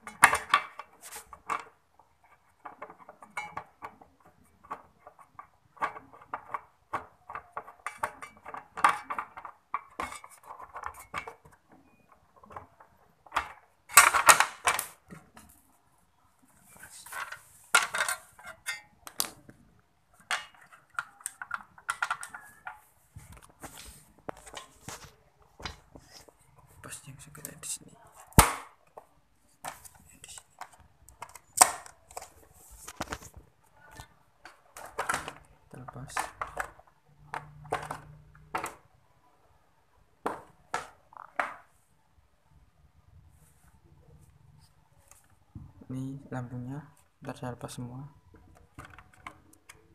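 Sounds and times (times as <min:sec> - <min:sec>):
sharp handling clicks and knocks: 0:00.0 - 0:15.6, 0:28.3 - 0:38.9, 0:48.3 - 0:49.9
tools and parts clattering on tiles: 0:00.0 - 0:15.8, 0:16.5 - 0:39.0, 0:40.2 - 0:41.8, 0:47.7 - 0:49.9.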